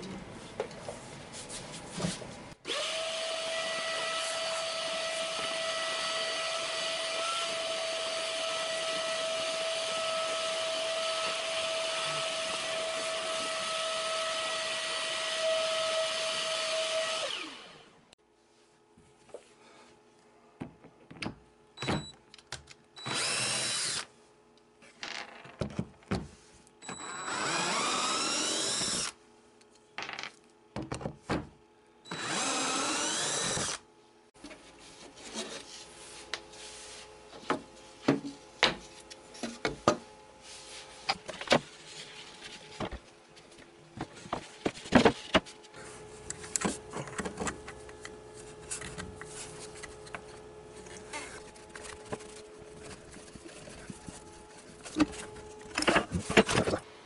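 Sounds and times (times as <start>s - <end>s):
electric drill whining: 9.3s - 17.8s, 23.0s - 24.1s, 26.8s - 29.2s, 32.1s - 33.8s.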